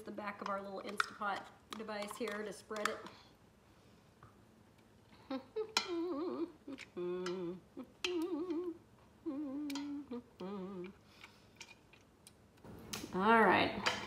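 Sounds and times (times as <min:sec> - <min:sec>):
woman humming: 0:05.2 - 0:11.0.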